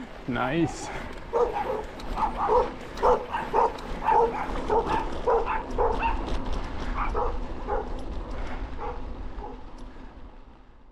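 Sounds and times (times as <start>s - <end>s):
dog barking: 1.3s - 6.3s, 7.0s - 7.9s.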